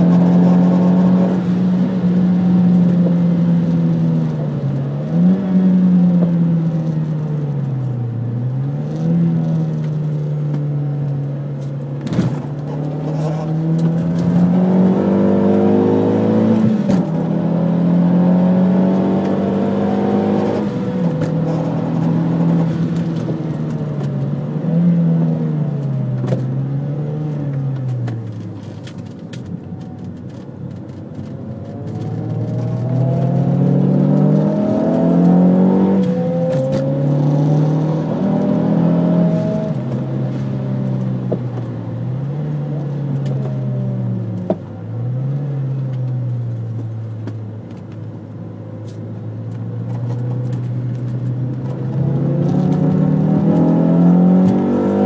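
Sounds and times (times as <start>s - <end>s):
car engine revving high: 0.0s - 6.9s, 12.4s - 23.6s, 31.9s - 41.3s, 51.4s - 55.0s.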